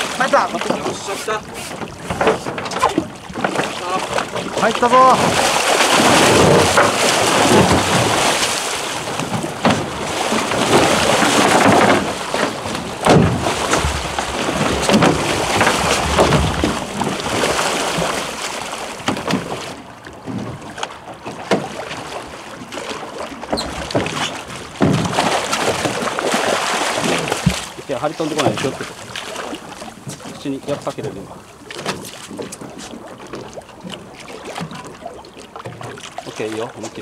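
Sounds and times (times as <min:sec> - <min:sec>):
water splashing against boat: 0:00.0 - 0:37.0
knocks: 0:13.0 - 0:14.0.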